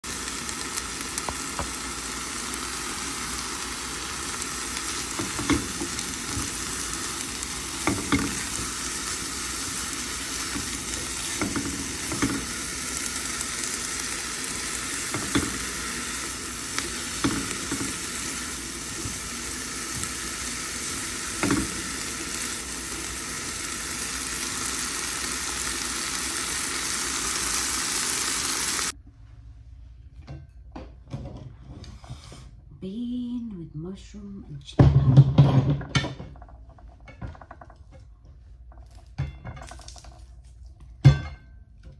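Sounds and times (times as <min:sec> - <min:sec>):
food sizzling in a frying pan: 0:00.0 - 0:29.0.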